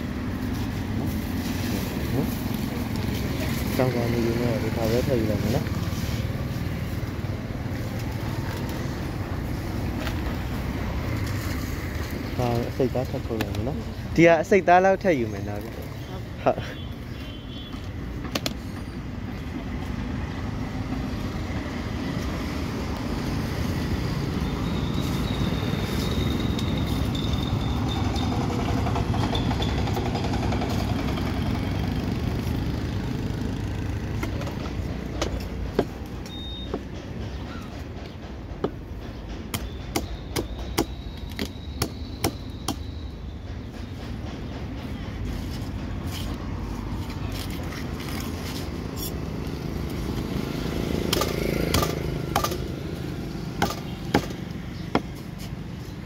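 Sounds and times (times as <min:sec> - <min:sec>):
street traffic rumble: 0:00.0 - 0:56.0
cleaver chopping fish on wood: 0:51.1 - 0:52.7, 0:53.5 - 0:55.2.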